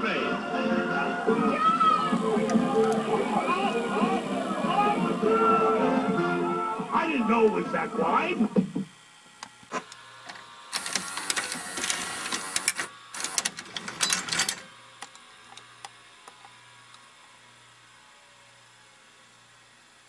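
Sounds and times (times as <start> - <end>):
tape mechanism whirring and clicking: 1.4 - 5.9, 7.4 - 17.1.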